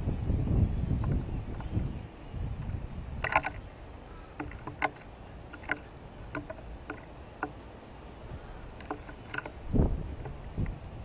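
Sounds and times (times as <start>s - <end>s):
birds pecking seed on wood: 2.6s - 10.8s.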